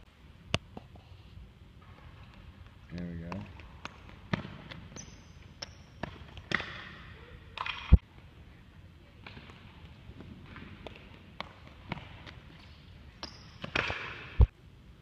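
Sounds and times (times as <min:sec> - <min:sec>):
sneakers squeaking on a gym floor: 0:03.8 - 0:07.1, 0:12.0 - 0:14.2.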